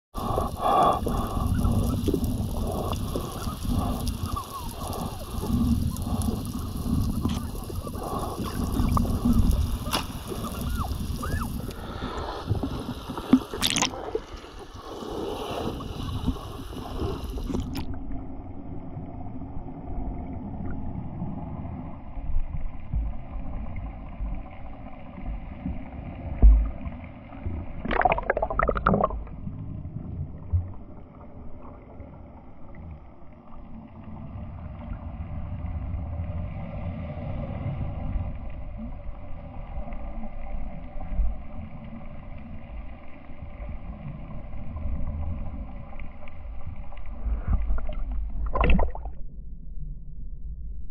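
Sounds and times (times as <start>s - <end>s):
water sloshing and gurgling: 0.2s - 49.7s
water splash: 8.8s - 16.1s, 27.8s - 29.4s, 47.7s - 49.2s
low rumble: 46.7s - 50.9s.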